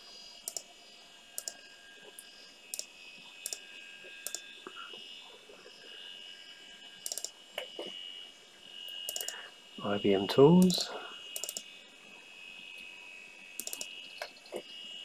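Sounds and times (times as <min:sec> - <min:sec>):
computer high whine: 0:00.0 - 0:15.0
mouse button double-clicking: 0:11.4 - 0:11.6, 0:13.6 - 0:13.9.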